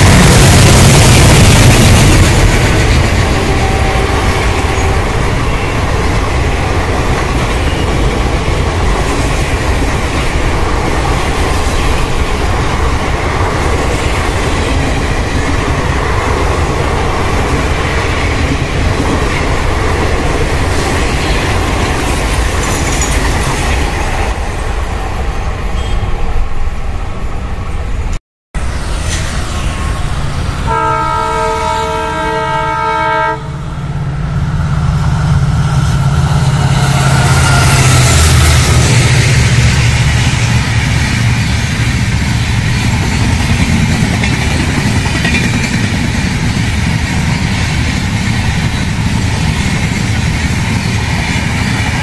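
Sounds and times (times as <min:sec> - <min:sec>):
train wheels rumbling on rails: 0:00.0 - 0:52.0.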